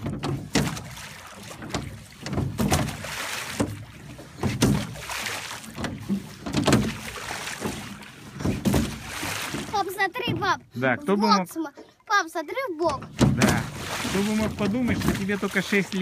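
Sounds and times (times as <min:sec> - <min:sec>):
oars knocking in oarlocks: 0:00.0 - 0:10.7, 0:12.8 - 0:16.0
water hissing along hull: 0:13.4 - 0:16.0.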